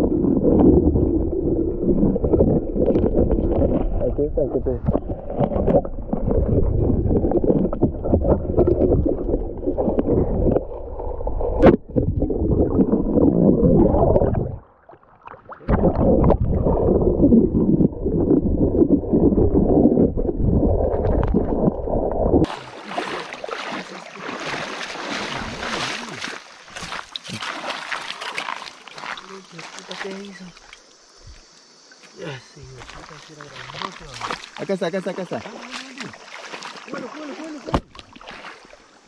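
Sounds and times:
muffled river water gurgling: 0:00.0 - 0:39.0
hiss of shallow running water: 0:22.5 - 0:39.0.

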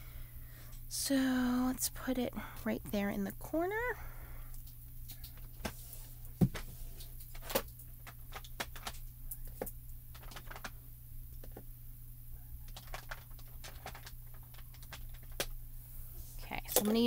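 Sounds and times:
steady low hum: 0:00.0 - 0:17.0
plastic items clicking on desk: 0:06.4 - 0:10.8, 0:12.7 - 0:15.6.

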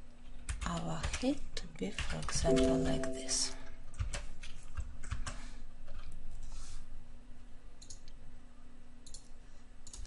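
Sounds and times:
computer keys and mouse clicks: 0:07.8 - 0:08.2, 0:09.0 - 0:10.0.

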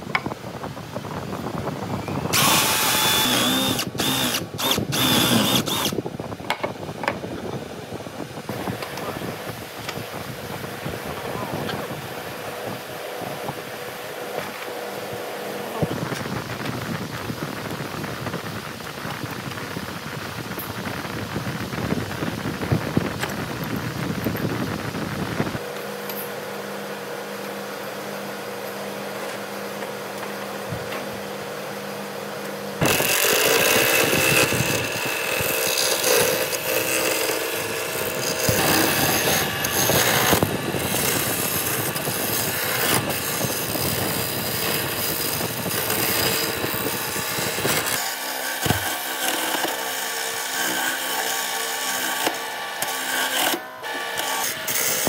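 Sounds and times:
wood lathe humming: 0:02.3 - 0:06.0, 0:32.8 - 0:55.0
chisel scraping spinning wood: 0:02.4 - 0:05.9, 0:32.8 - 0:55.0.

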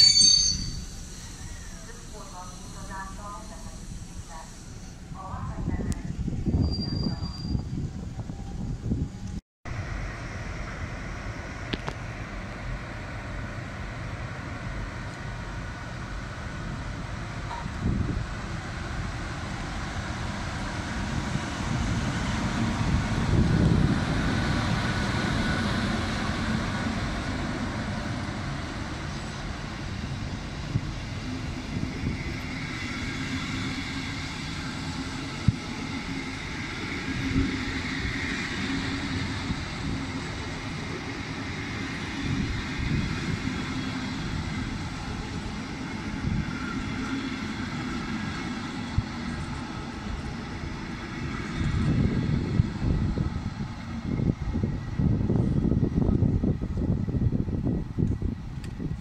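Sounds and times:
electric locomotive passing: 0:00.0 - 0:59.0
train coaches rumbling by: 0:00.0 - 0:59.0.

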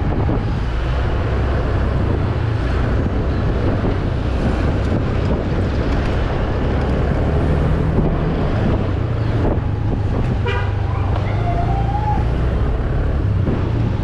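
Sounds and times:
wind rush: 0:00.0 - 0:14.0
vehicle horn toot: 0:10.4 - 0:10.8.

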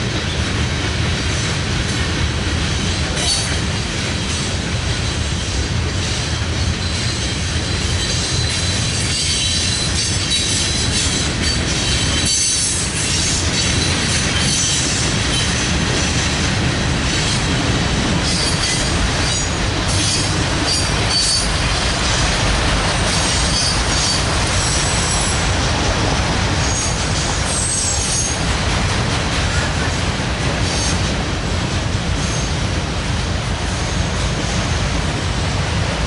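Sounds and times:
train cars clattering over rails: 0:00.0 - 0:36.0
wheel squeals: 0:18.3 - 0:21.5.

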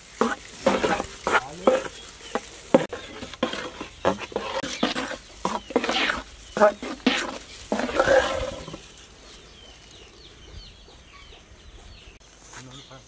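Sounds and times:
metal spoon stirring thick batter: 0:00.0 - 0:08.8
spoon scraping and knocking pot: 0:00.2 - 0:08.8.

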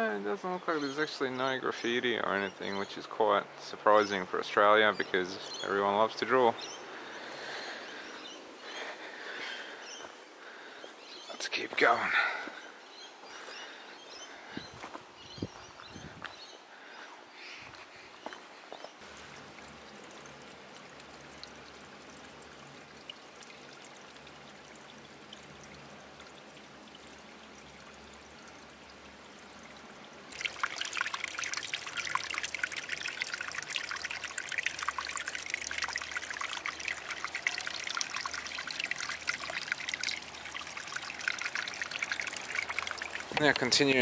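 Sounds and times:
faint outdoor hiss: 0:00.0 - 0:44.0
running water splashing: 0:18.8 - 0:44.0.

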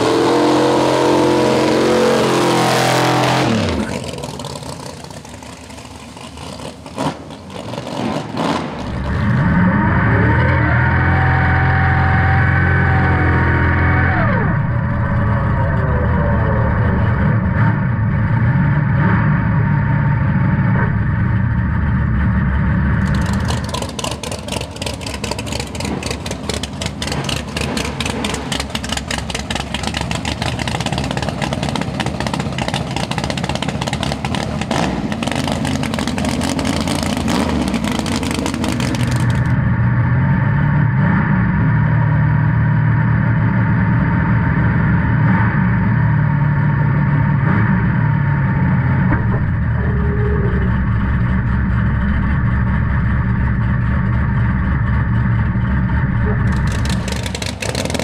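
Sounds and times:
engine with rapid clicks: 0:03.5 - 0:10.8, 0:14.2 - 0:58.0
car engine idling: 0:03.7 - 0:07.7, 0:11.3 - 0:58.0.

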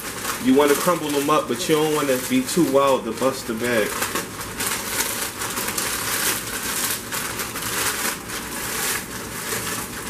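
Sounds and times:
plastic snack bag crinkling: 0:00.0 - 0:10.0.

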